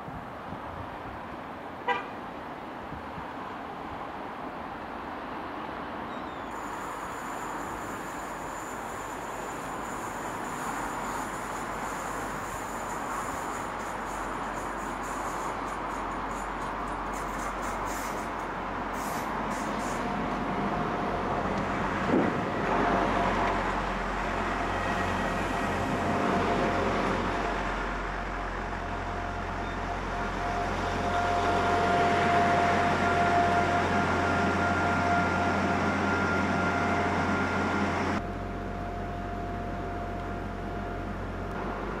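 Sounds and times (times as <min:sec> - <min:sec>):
diesel train rumbling: 0:04.5 - 0:42.0
train whine: 0:06.5 - 0:42.0.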